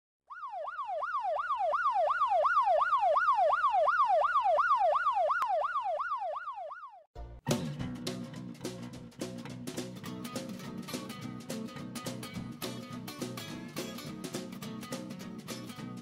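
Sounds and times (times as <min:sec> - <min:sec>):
police siren yelping: 0:00.3 - 0:07.1
music: 0:07.2 - 0:16.0.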